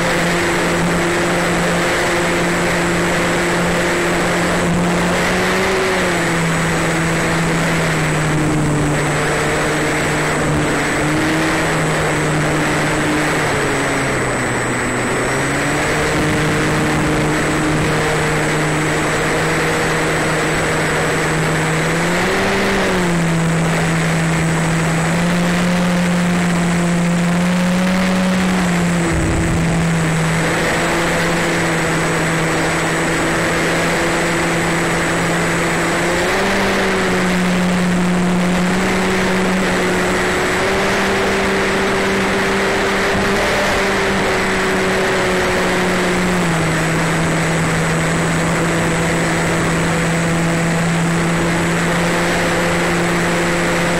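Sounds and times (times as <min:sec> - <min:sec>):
electric motor and propeller humming: 0:00.0 - 0:53.9
wind rushing: 0:28.4 - 0:32.7.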